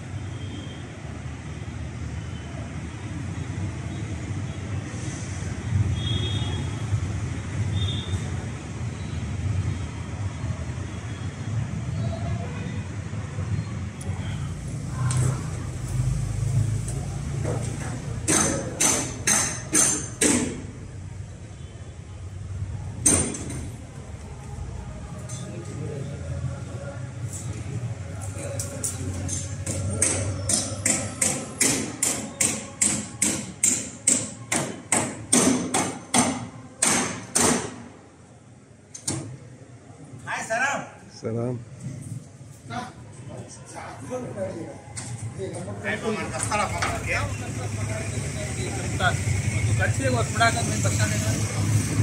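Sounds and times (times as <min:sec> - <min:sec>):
hammer strikes: 0:17.4 - 0:20.7, 0:23.0 - 0:23.7, 0:28.8 - 0:37.9.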